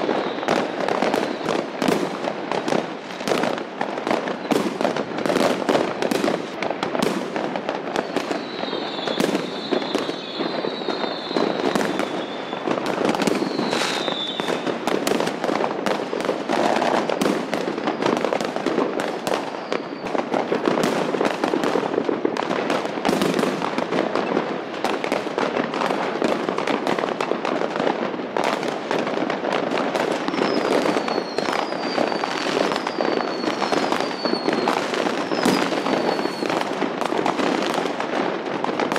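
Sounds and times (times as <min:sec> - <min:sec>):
falling firework whistles: 0:00.0 - 0:15.4, 0:16.0 - 0:21.4, 0:30.0 - 0:38.2
firecrackers crackling and banging: 0:00.0 - 0:38.9.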